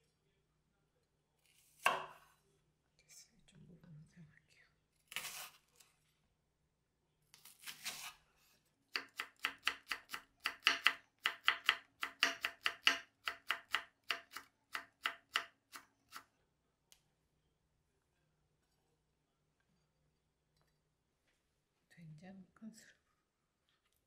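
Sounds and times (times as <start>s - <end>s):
knife chopping on wooden board: 1.8s - 2.3s, 9.0s - 15.5s.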